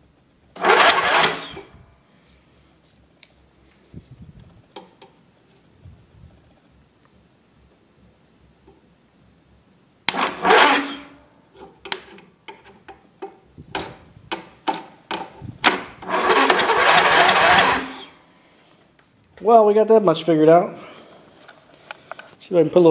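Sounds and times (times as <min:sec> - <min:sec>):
engine starter cranking: 0:00.6 - 0:01.8, 0:10.1 - 0:11.2, 0:15.6 - 0:18.2.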